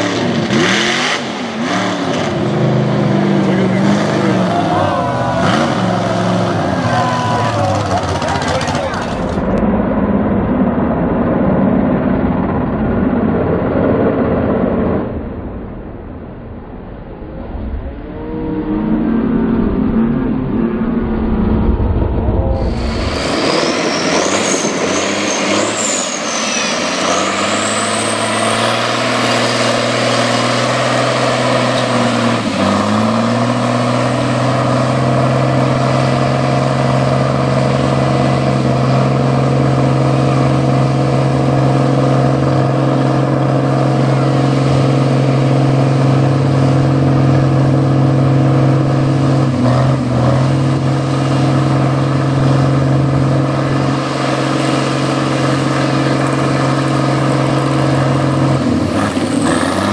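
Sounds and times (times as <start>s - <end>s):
truck engine revving high: 0.0s - 16.2s, 16.9s - 59.9s
high whine: 0.0s - 59.9s
truck throwing mud: 22.6s - 59.9s.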